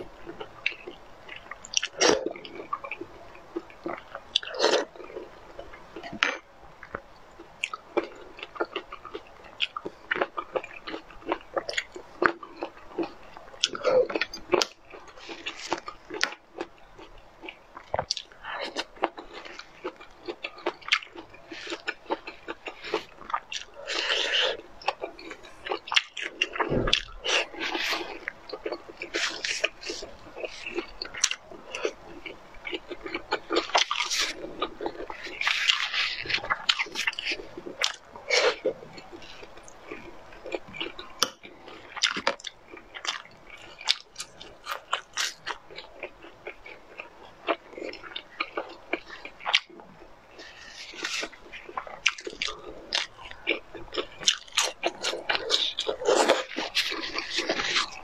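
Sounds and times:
wet chewing: 0:00.0 - 0:58.0
low thump: 0:26.7 - 0:27.0.

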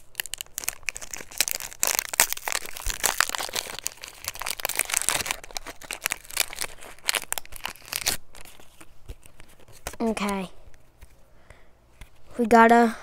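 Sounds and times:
foil wrapper crinkling and tearing: 0:00.0 - 0:10.3.

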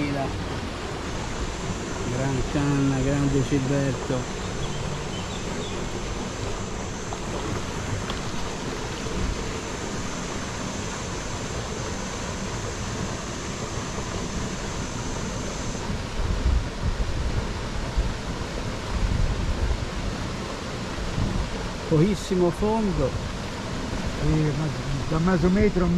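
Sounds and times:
river water rushing: 0:00.0 - 0:25.9
thin high hiss: 0:00.9 - 0:17.1
wind buffeting the microphone: 0:15.9 - 0:21.9.

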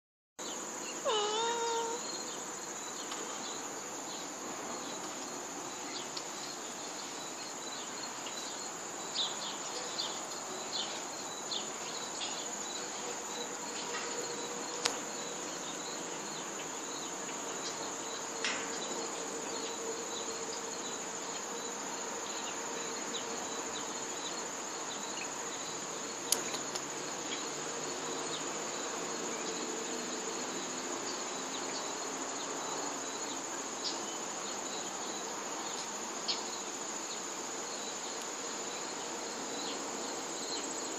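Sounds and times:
high-pitched insect chorus: 0:00.4 - 0:40.9
cat meowing: 0:01.0 - 0:02.1.

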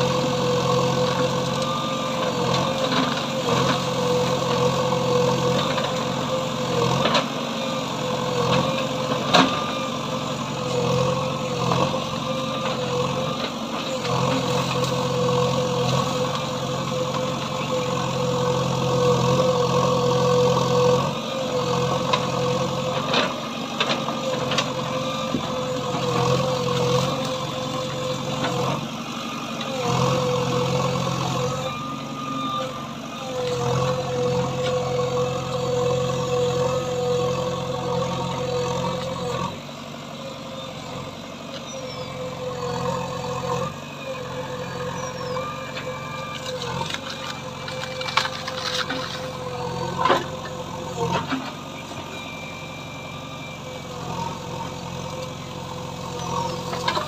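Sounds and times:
diesel engine running: 0:00.0 - 0:57.0
backhoe arm digging through brush: 0:46.3 - 0:51.4.

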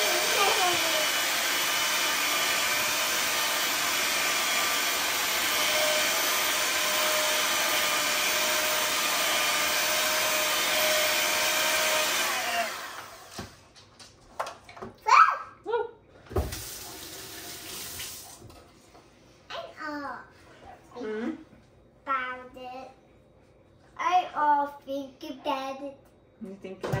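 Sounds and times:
electric hand mixer running: 0:00.0 - 0:13.6.

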